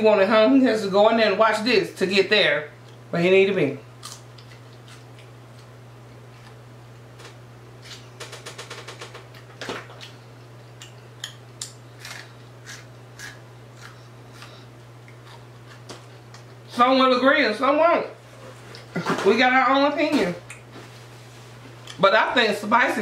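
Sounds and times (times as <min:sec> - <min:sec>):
low electrical hum: 0:00.0 - 0:23.0
chewing crispy food crunches: 0:04.0 - 0:06.6, 0:09.3 - 0:16.5.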